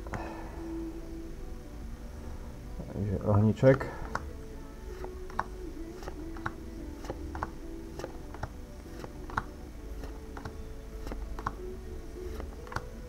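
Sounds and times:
trading cards clicking: 0:04.0 - 0:04.3, 0:05.0 - 0:11.6, 0:12.3 - 0:13.0.

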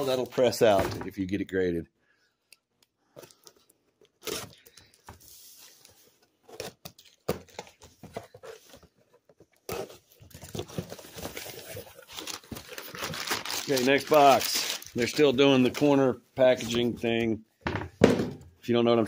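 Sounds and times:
packaging crinkling and tearing: 0:09.7 - 0:16.0.

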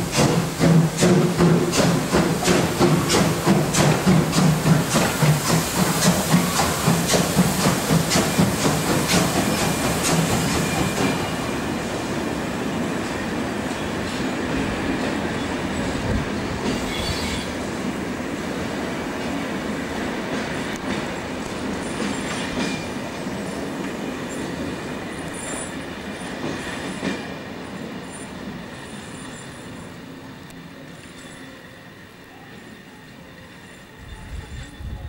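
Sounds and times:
train wheels rumbling on rails: 0:00.0 - 0:35.0
wheel squeals: 0:16.8 - 0:17.5.

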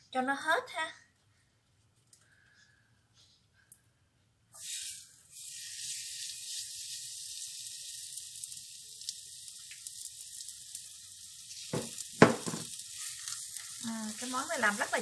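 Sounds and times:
batter sizzling in oil: 0:04.6 - 0:15.0.

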